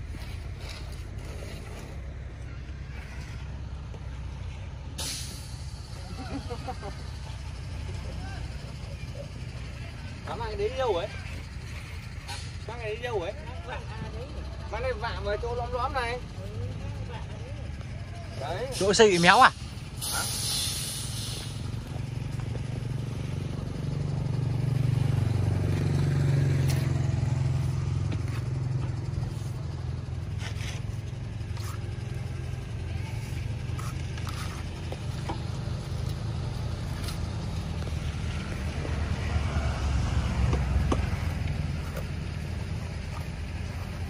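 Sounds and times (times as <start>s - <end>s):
trowel scraping wet cement: 0.0s - 2.2s, 30.3s - 32.3s, 33.0s - 35.4s
low motor vehicle rumble: 0.0s - 44.0s.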